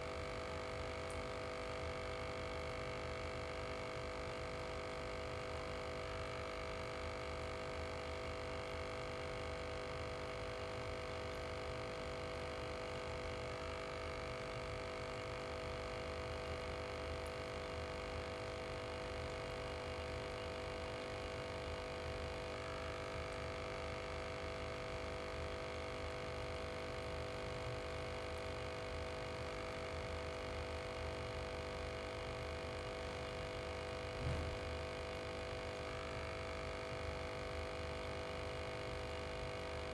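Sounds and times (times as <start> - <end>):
brief low thump: 34.2 - 34.7.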